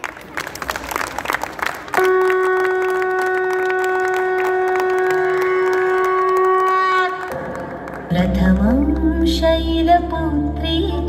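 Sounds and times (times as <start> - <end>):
hand-clapping: 0.0 - 8.1
conch shell blown: 1.9 - 7.5.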